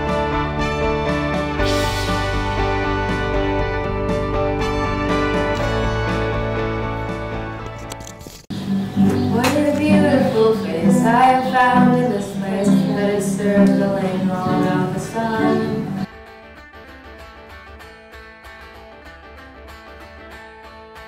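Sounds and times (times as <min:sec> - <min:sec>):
soft guitar music: 0:00.0 - 0:21.0
girls singing with guitar: 0:08.7 - 0:16.1.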